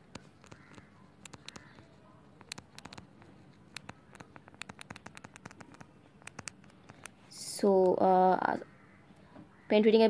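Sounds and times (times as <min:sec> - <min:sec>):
stylus tapping on glass screen: 0:00.0 - 0:03.0, 0:03.7 - 0:07.2.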